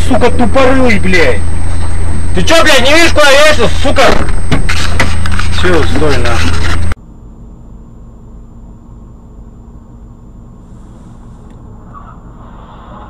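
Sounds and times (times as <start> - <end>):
car engine rumble: 0.0 - 7.0.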